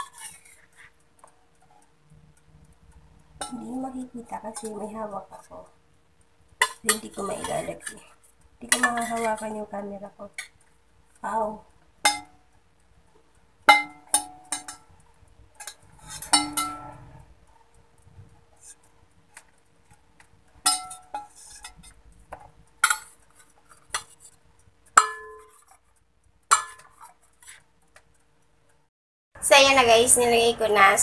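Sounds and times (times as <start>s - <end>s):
metal spatula clinking on plate: 13.7s - 14.9s, 15.6s - 17.2s.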